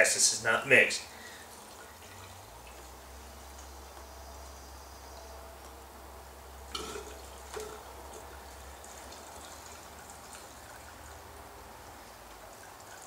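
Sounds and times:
steady low hum: 0:00.0 - 0:12.7
gasoline trickling into tank: 0:01.1 - 0:04.3, 0:06.7 - 0:13.0.

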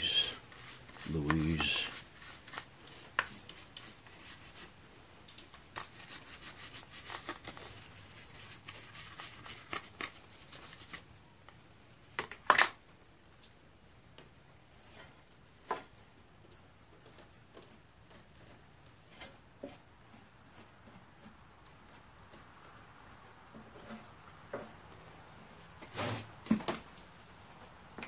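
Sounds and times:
small scrapes and clicks: 0:00.2 - 0:11.0, 0:14.8 - 0:24.8.

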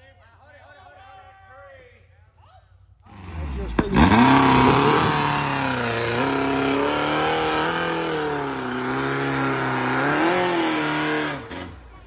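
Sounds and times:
buggy engine revving hard: 0:03.1 - 0:12.0.

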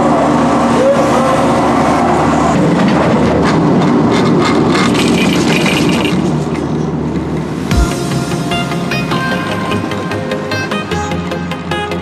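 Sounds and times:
rattling clicks and clacks: 0:02.6 - 0:07.4.

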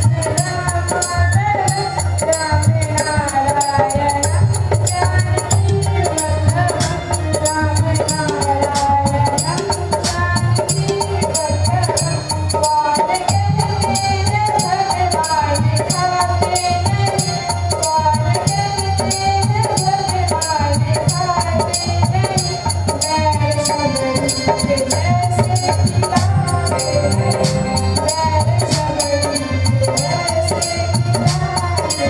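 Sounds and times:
drum beat and percussion: 0:00.0 - 0:32.0.

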